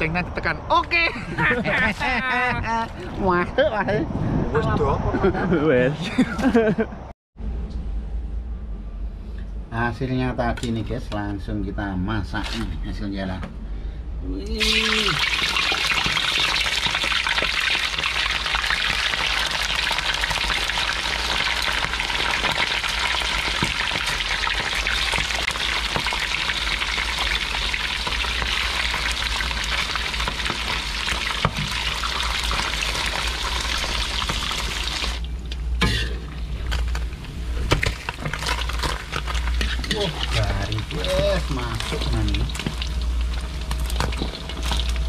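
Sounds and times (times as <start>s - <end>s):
fish frying in hot oil: 14.6s - 37.1s, 37.7s - 45.0s.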